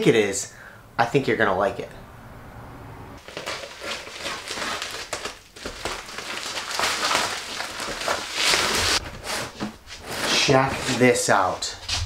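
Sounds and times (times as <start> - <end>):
plastic wrap crinkling and tearing: 3.2 - 10.5.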